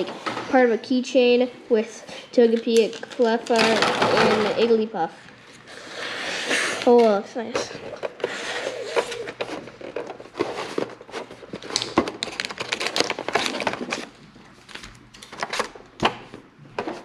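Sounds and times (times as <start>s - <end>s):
foil packs crinkling: 7.9s - 15.8s.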